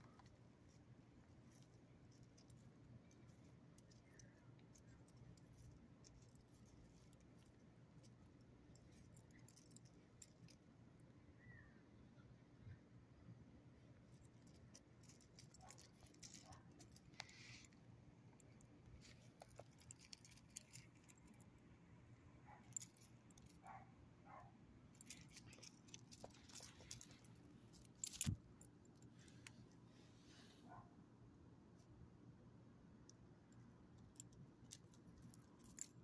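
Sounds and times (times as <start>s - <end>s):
dog collar and leash jingling: 0.0s - 10.7s, 14.2s - 17.5s, 18.4s - 21.5s, 22.4s - 29.1s, 34.2s - 36.0s
leash hardware clatter: 0.0s - 10.7s, 14.1s - 17.8s, 18.4s - 21.6s, 22.4s - 29.8s, 34.0s - 36.0s.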